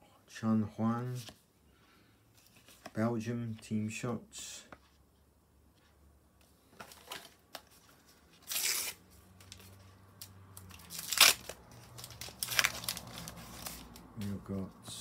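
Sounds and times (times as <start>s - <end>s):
sticker packet wrapper ripping: 8.4s - 9.0s, 10.6s - 14.0s
wrapper crinkling: 10.6s - 14.0s.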